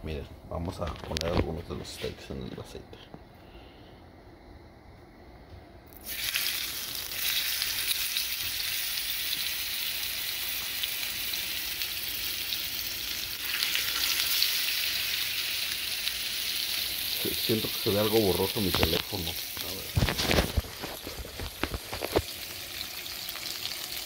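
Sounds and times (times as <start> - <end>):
fish sizzling in frying pan: 6.0 - 24.0.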